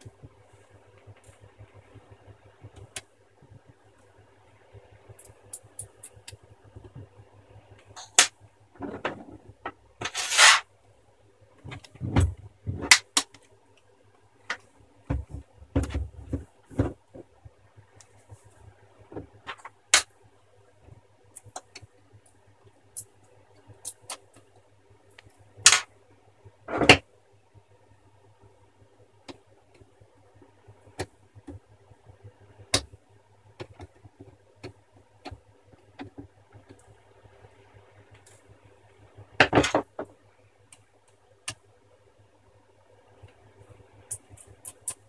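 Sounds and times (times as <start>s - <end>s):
small parts clattering: 10.0s - 10.6s.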